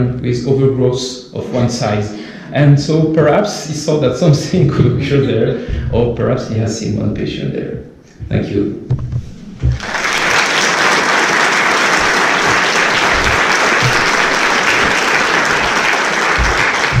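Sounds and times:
dull low thumps: 0:04.7 - 0:06.3, 0:08.2 - 0:09.8, 0:16.4 - 0:17.0
audience applauding: 0:09.6 - 0:17.0.

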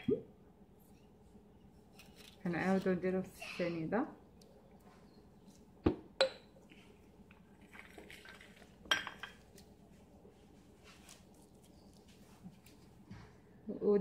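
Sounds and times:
glasses clinking on countertop: 0:06.2 - 0:06.5, 0:08.9 - 0:09.4.

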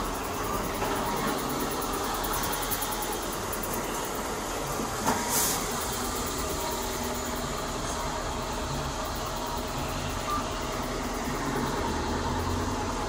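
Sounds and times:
street traffic noise: 0:00.0 - 0:13.0
brief hiss: 0:05.0 - 0:05.8.

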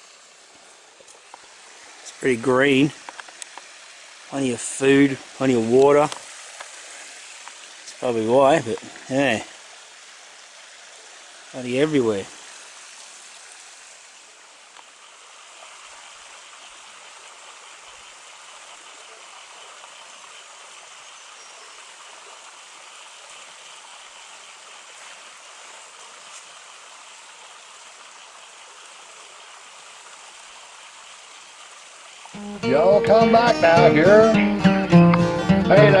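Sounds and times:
creek water rushing: 0:00.0 - 0:36.0.

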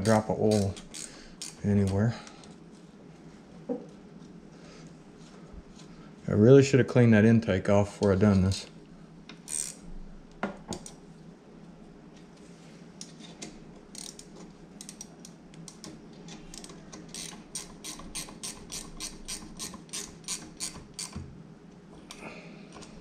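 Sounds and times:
ratchet wrench clicking: 0:00.0 - 0:02.0, 0:09.5 - 0:09.8, 0:14.0 - 0:15.1, 0:16.5 - 0:21.2.

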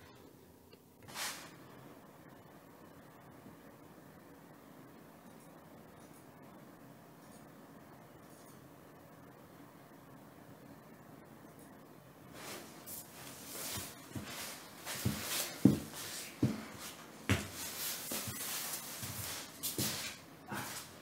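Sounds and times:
soft footsteps on floor: 0:12.4 - 0:21.0.

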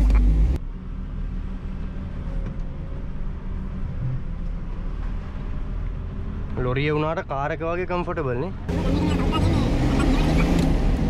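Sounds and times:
diesel truck engine humming: 0:08.6 - 0:11.0.

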